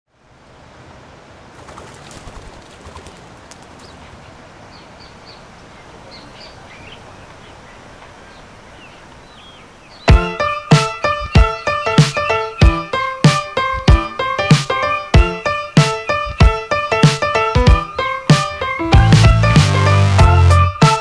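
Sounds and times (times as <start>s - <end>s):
steady background hiss: 0.1s - 18.9s
birds chirping faintly: 0.1s - 20.8s
music with piano and strong beat: 10.1s - 21.0s.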